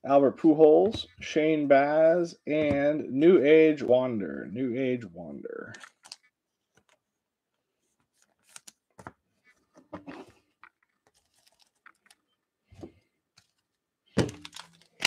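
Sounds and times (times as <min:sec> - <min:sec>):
card rustling: 0:07.9 - 0:12.2.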